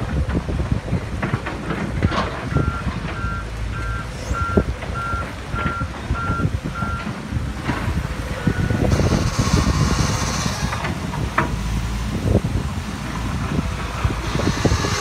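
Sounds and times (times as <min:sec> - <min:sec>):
low engine rumble: 0:00.0 - 0:15.0
reversing alarm beeping: 0:02.1 - 0:07.1.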